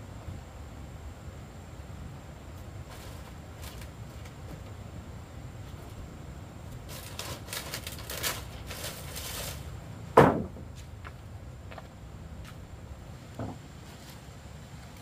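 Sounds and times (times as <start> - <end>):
scraping and rustling: 2.8 - 4.8, 6.7 - 9.8
loud knock: 10.2 - 10.6.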